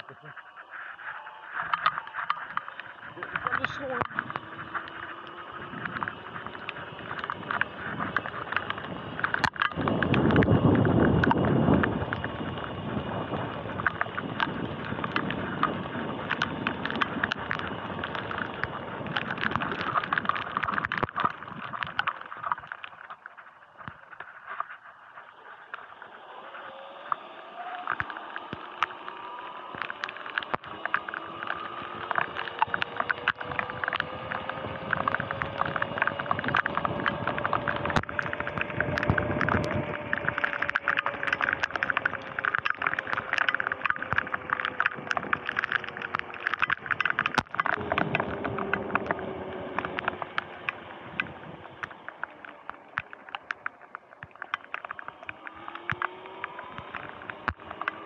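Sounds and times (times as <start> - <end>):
electric motor whining: 0.0 - 22.8, 25.3 - 58.0
raindrops ticking on camera: 0.0 - 58.0
tyres rumbling on wet pavement: 0.0 - 58.0.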